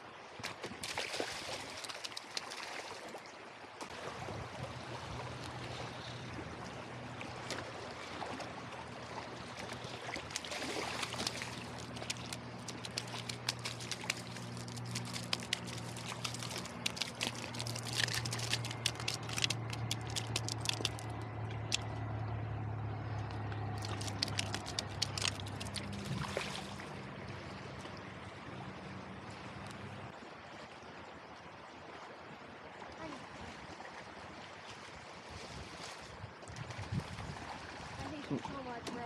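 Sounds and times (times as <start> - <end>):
creek water running over stones: 0.3 - 6.6, 7.2 - 28.1
steady low hum: 3.9 - 30.2
gravel clicks and crunches: 10.2 - 21.9, 23.8 - 26.2.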